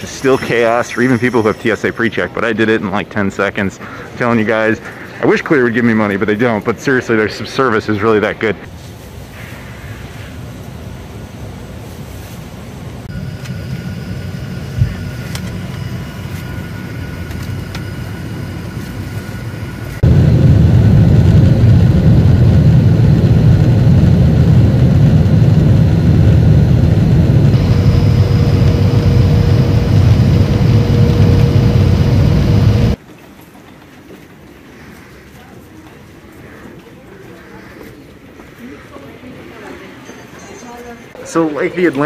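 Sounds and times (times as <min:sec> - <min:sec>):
jet engines and airflow rumbling: 0:00.0 - 0:33.0
airplane cabin hum with whine: 0:10.6 - 0:33.0.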